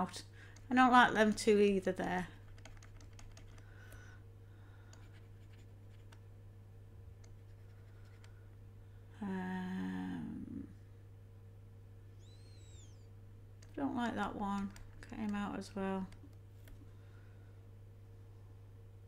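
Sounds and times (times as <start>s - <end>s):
steady low hum: 0.0s - 19.0s
computer mouse clicks: 2.4s - 3.7s, 4.9s - 6.3s, 7.2s - 8.4s, 14.6s - 15.4s
woman humming: 9.2s - 10.8s.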